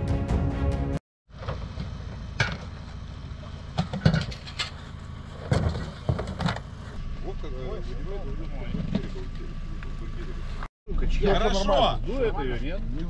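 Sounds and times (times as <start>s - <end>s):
music: 0.0s - 1.0s
hovercraft engine idling: 1.4s - 13.0s.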